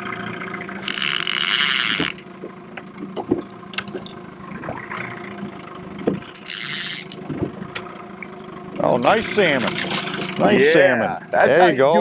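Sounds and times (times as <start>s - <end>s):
boat motor humming: 0.0s - 12.0s
reel cranking clicks: 0.8s - 2.2s, 6.3s - 7.2s
fishing reel drag buzzing: 0.8s - 2.3s, 6.3s - 7.2s.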